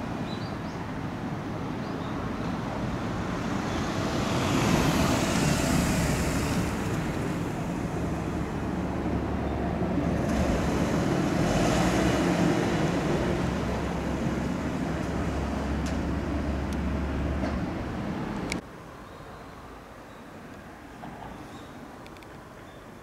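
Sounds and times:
steady traffic rumble: 0.0s - 23.0s
car driving past: 3.4s - 8.7s, 9.4s - 17.4s.

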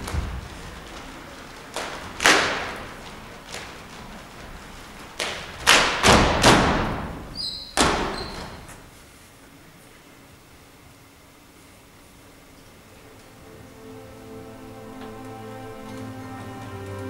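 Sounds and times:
stamps and hits ringing in a hall: 5.2s - 8.8s
brief high squeak: 7.4s - 8.6s.

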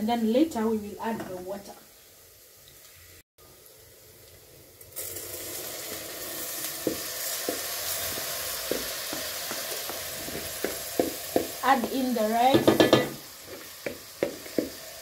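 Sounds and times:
rice sizzling in hot oil: 0.1s - 15.0s
wooden spoon knocking and scraping: 6.9s - 14.8s.

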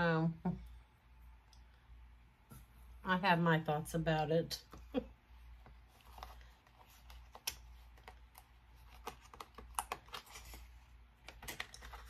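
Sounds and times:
packaging clicks and rustles: 5.9s - 12.0s.

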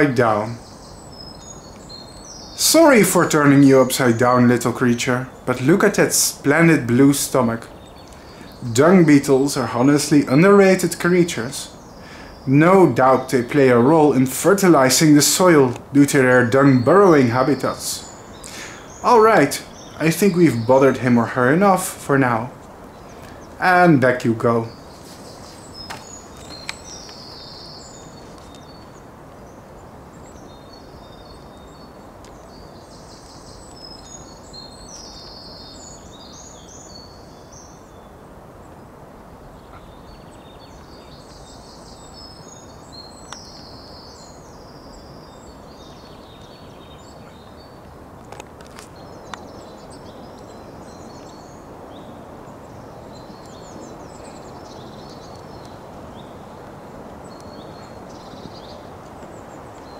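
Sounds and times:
background hiss: 0.0s - 59.9s
songbird singing: 0.0s - 59.9s
faint clicks: 8.0s - 8.3s, 25.8s - 27.2s, 47.4s - 49.5s, 55.3s - 55.8s.

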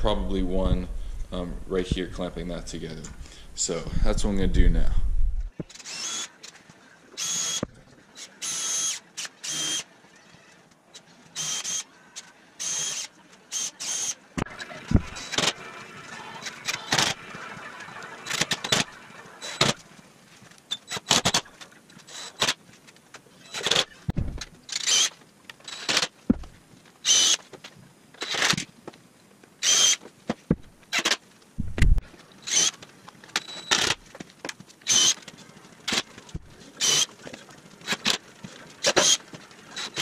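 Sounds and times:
cordless drill motor whining: 5.8s - 6.3s, 7.2s - 9.9s, 11.4s - 11.9s, 24.7s - 25.1s, 32.4s - 32.8s, 34.8s - 35.2s
wood knocking: 26.3s - 26.6s.

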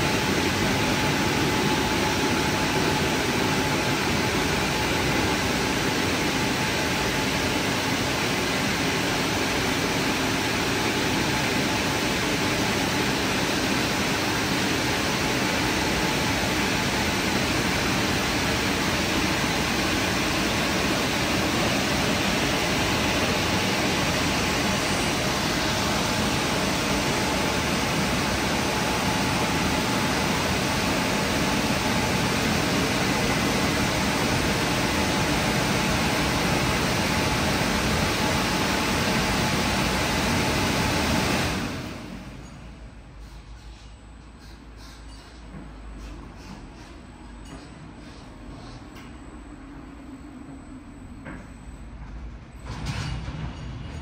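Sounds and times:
car wash blower dryer: 0.0s - 42.4s.

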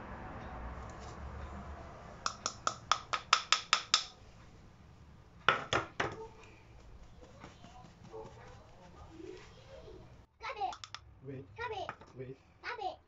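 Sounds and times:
metal sieve tapping: 2.2s - 4.2s, 10.7s - 11.0s.

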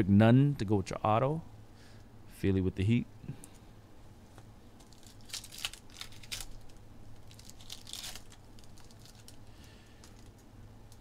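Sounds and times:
wrapper tearing and crinkling: 4.8s - 10.3s.

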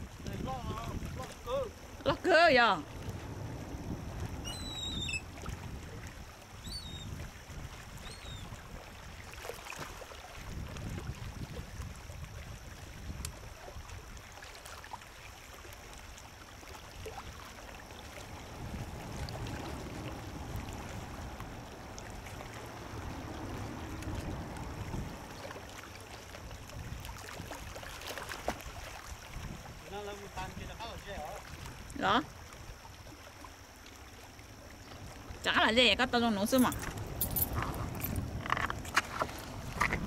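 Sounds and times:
light splashes: 0.0s - 40.0s
low rumbling water wash: 0.0s - 40.0s
faint high chirps: 4.4s - 5.2s.

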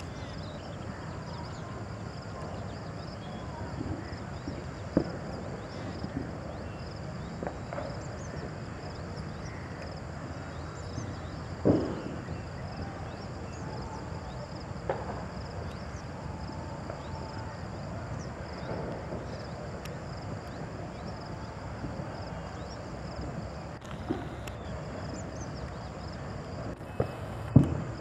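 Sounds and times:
steady low rumble: 17.9s - 28.0s.

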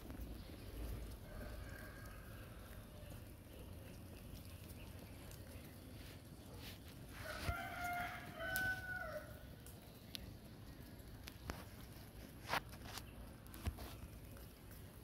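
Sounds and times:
low steady background: 0.0s - 15.0s
pigeons pecking grain: 0.0s - 15.0s
rooster crowing: 1.2s - 2.7s, 7.2s - 9.4s.

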